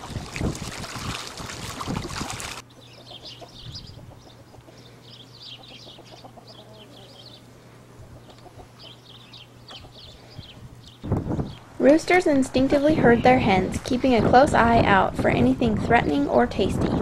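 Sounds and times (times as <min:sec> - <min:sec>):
duck splashing in water: 0:00.0 - 0:02.6
chickens clucking: 0:02.6 - 0:10.7.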